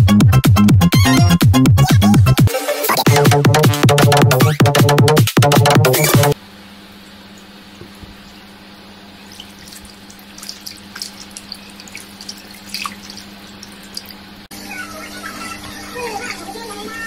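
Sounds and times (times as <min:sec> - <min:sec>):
water dripping: 0:06.8 - 0:14.5
fish splashing in shallow water: 0:09.1 - 0:14.4.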